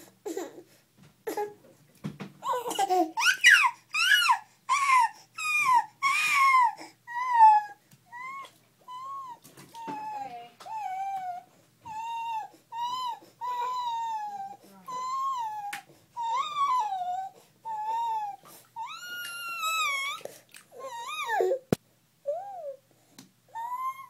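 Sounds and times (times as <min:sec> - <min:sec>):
toddler squealing: 0:02.6 - 0:09.4, 0:17.9 - 0:20.2, 0:23.6 - 0:24.0.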